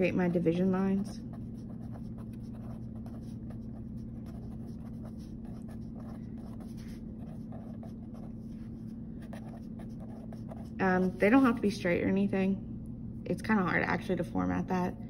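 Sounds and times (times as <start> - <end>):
steady low hum: 0.0 - 15.0
pen scratching on paper: 1.0 - 11.6.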